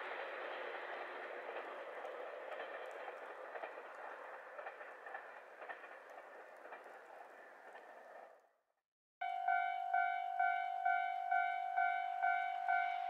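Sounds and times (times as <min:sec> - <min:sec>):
wheels clicking over track: 0:00.0 - 0:08.4
train running on rails: 0:00.0 - 0:08.6, 0:09.2 - 0:13.0.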